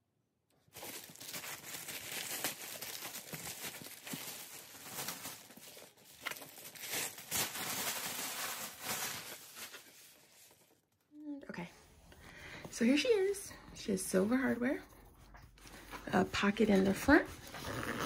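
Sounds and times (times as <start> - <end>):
plastic bag crinkling: 0.6 - 10.8.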